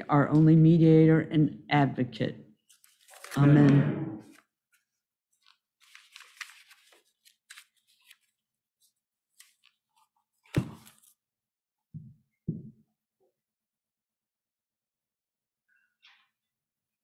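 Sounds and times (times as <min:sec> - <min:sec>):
pages rustling: 0:02.6 - 0:03.5, 0:04.2 - 0:11.2.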